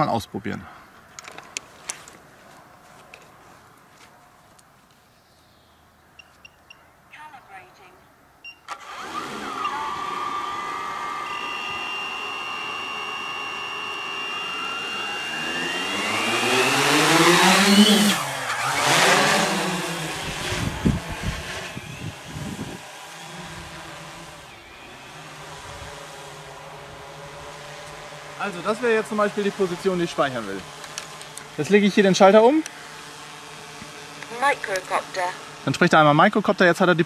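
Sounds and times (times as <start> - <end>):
multicopter motors whining: 8.7 - 37.0
wind thumps on microphone: 20.2 - 22.8.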